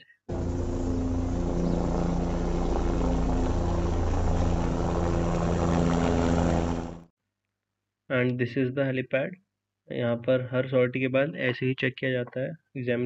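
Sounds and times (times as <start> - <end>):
helicopter engine and rotor drone: 0.3 - 7.0.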